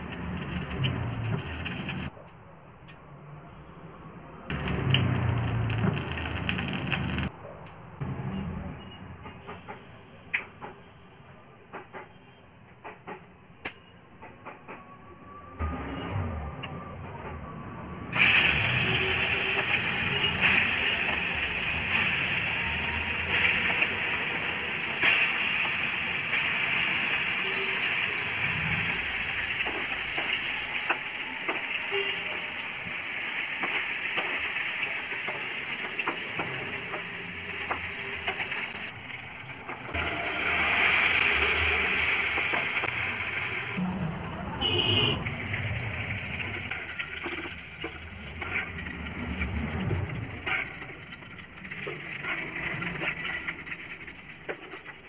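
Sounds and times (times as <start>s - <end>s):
fish sizzling in hot oil: 0.0s - 2.1s, 4.5s - 7.3s, 18.2s - 39.0s, 40.0s - 43.8s, 44.6s - 55.0s.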